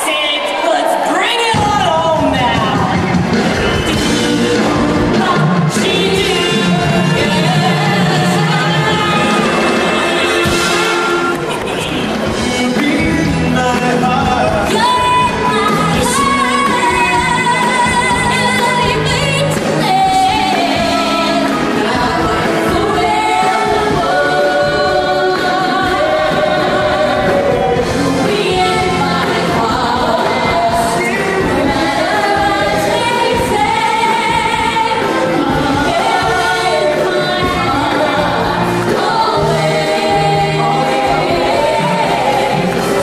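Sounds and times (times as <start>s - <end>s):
amplified pop-rock backing music: 1.5s - 43.0s
other voices singing: 1.8s - 43.0s
woman singing into microphone: 14.7s - 43.0s.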